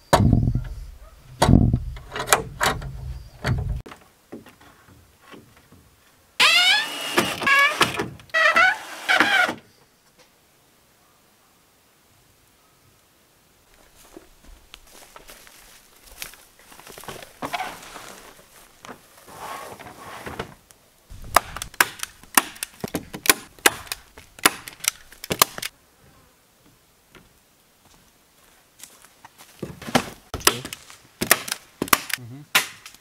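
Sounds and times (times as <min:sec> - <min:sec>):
roofing membrane rustling: 0:13.7 - 0:25.7.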